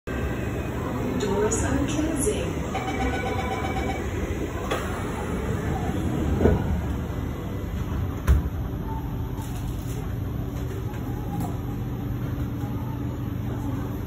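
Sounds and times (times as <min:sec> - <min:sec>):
train doors shutting with a thump: 0:07.8 - 0:08.7.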